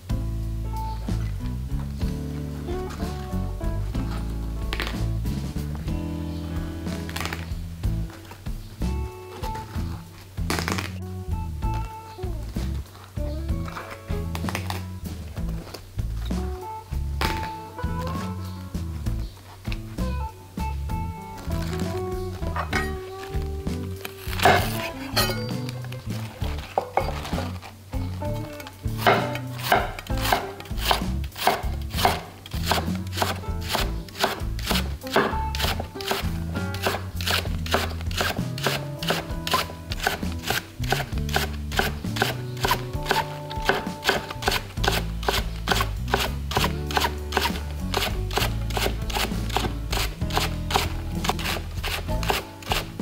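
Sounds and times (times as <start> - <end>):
background music: 0.0 - 53.0
knife cutting cabbage on board: 29.0 - 52.9.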